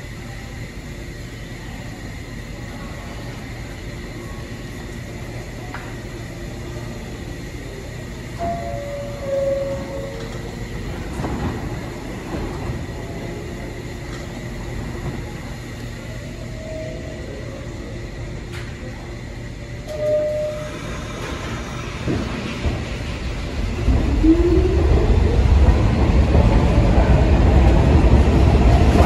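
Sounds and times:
subway train rumble: 0.0 - 29.0
train wheel clatter: 8.3 - 15.8, 19.8 - 29.0
train wheels squealing: 8.4 - 11.5, 19.9 - 21.9.

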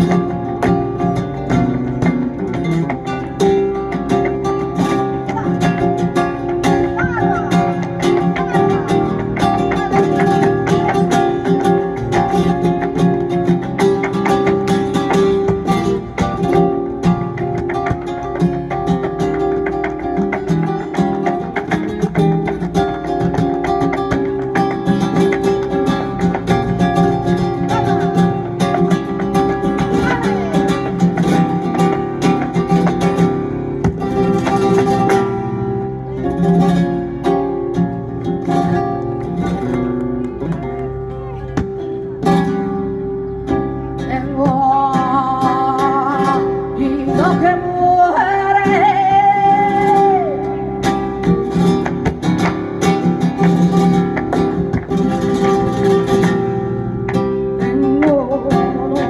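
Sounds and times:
flamenco guitar: 0.0 - 59.0
woman singing: 5.2 - 11.8, 44.0 - 51.2, 57.6 - 59.0.

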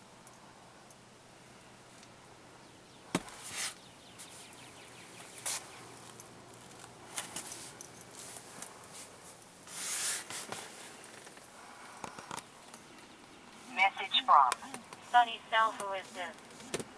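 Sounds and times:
short brushing sounds: 3.4 - 4.5, 9.7 - 11.0.

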